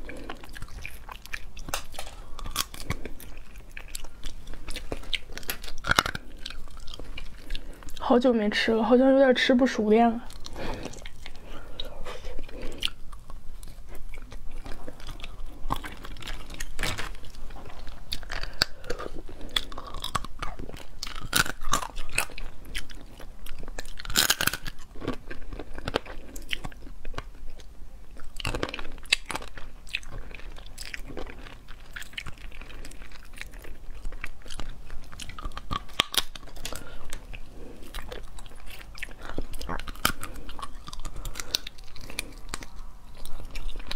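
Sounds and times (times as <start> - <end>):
chewing and biting: 0.0 - 8.1, 10.2 - 43.9
crab shell cracking: 0.6 - 8.0.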